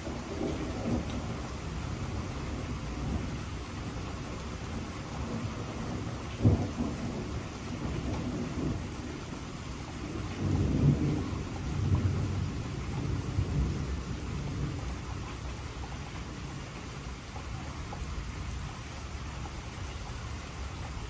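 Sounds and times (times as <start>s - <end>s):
thunder rumbling: 0.0s - 16.7s
steady rain: 0.0s - 21.0s
thunder crack: 4.7s - 9.2s, 10.0s - 14.7s.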